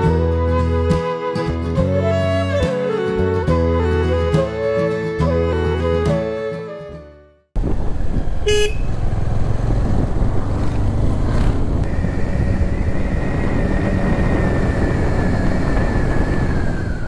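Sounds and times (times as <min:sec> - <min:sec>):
motorcycle engine: 0:07.6 - 0:17.0
road noise: 0:07.6 - 0:17.0
motorcycle horn toot: 0:08.4 - 0:09.0.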